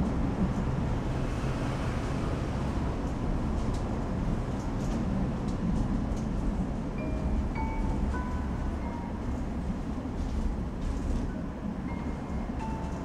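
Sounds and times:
low rumbling noise: 0.0s - 5.4s.

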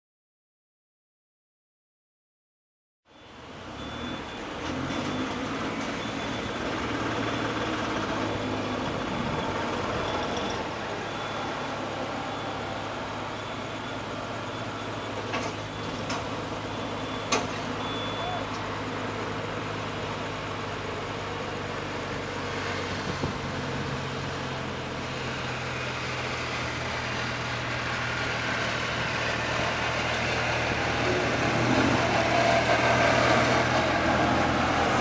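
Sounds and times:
jet engines rumbling: 6.8s - 20.1s, 26.3s - 35.0s.

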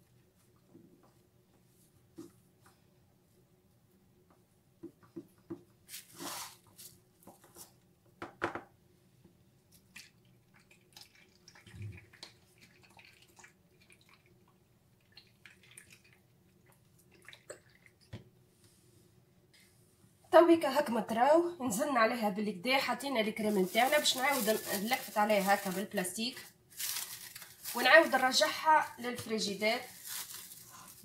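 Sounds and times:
plastic wrap rustling: 5.9s - 7.7s, 23.2s - 31.0s.

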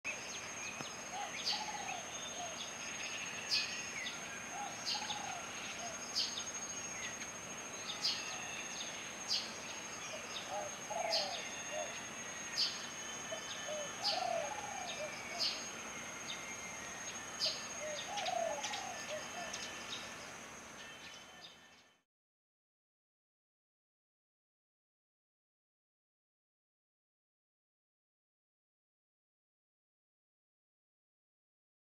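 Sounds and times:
sparrows chirping: 0.2s - 21.7s
lower bird call: 7.9s - 20.1s.

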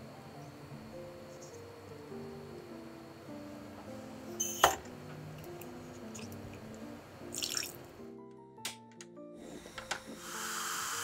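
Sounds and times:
soft background music: 0.0s - 11.0s
water trickling into saucepan: 7.3s - 7.8s.

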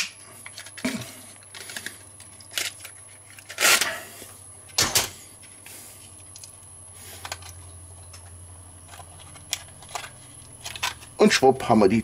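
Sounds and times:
steady low hum: 0.0s - 12.0s
metal tube crinkling: 6.2s - 11.2s.

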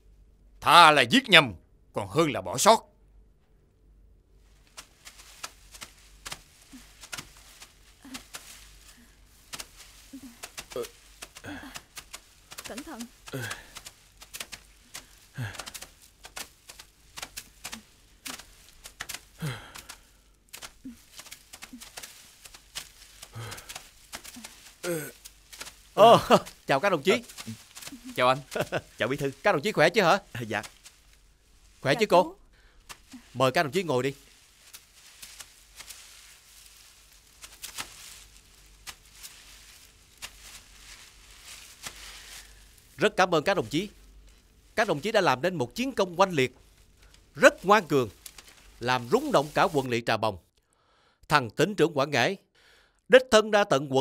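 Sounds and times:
faint steady hiss: 0.0s - 51.5s
footsteps crunching dry leaves: 4.4s - 49.9s
people grunting: 10.1s - 12.0s, 12.7s - 13.8s, 15.4s - 15.8s, 19.3s - 19.9s, 23.3s - 25.2s, 26.0s - 29.5s.

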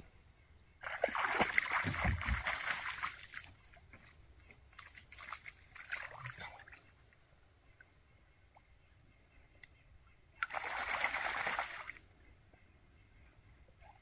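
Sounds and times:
dog splashing in water: 0.8s - 3.5s, 10.4s - 12.0s.

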